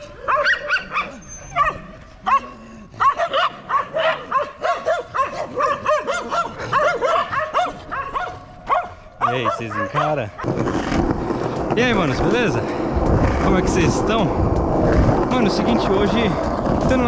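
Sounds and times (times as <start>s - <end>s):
dogs barking: 0.0s - 11.6s.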